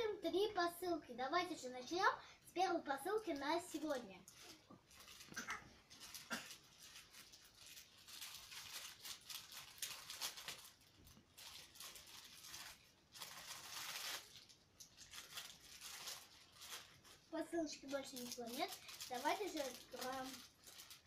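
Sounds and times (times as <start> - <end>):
plastic mailer bag tearing: 4.9 - 21.0.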